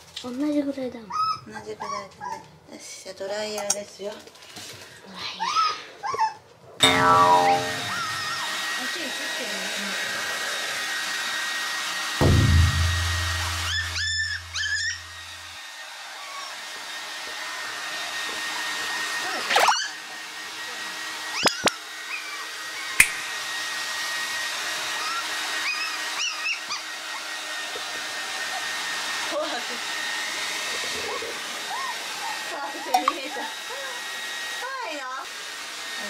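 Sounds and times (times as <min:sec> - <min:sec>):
puppy whining: 0:01.0 - 0:02.6, 0:05.2 - 0:06.8, 0:13.6 - 0:15.2, 0:19.2 - 0:20.0, 0:21.4 - 0:23.0, 0:25.0 - 0:27.4, 0:30.7 - 0:34.0
hair dryer running: 0:07.9 - 0:36.0.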